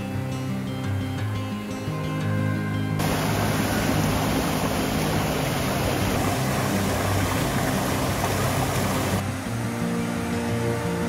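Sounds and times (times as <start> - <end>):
waterfall rushing over boulders: 3.0 - 11.0.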